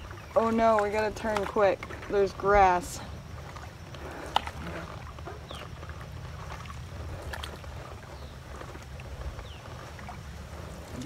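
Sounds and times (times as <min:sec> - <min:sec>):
canoe paddles in water: 0:00.0 - 0:11.0
steady low rumble: 0:00.0 - 0:11.0
bird chirping: 0:05.2 - 0:05.9.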